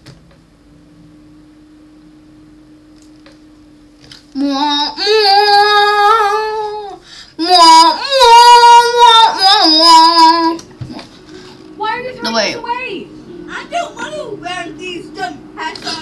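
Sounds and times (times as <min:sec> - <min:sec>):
faint steady hum: 0:00.0 - 0:16.0
young person singing long notes: 0:04.4 - 0:11.0.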